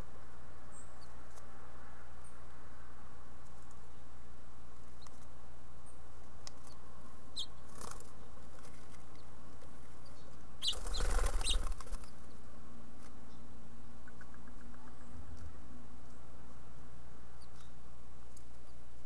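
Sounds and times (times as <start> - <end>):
bird wings flapping: 7.7 - 9.1, 10.6 - 12.2.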